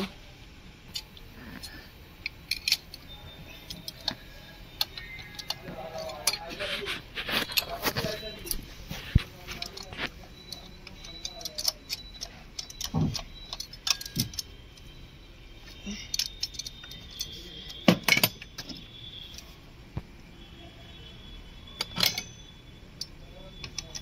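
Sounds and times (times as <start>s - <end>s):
metal tools clinking on pulley: 0.9s - 6.6s, 9.6s - 14.9s, 15.7s - 18.9s, 21.8s - 24.0s.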